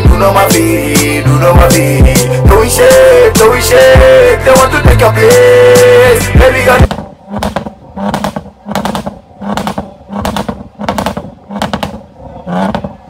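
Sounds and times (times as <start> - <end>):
car engine revving: 1.8 - 13.0
exhaust popping and crackling: 3.4 - 13.0.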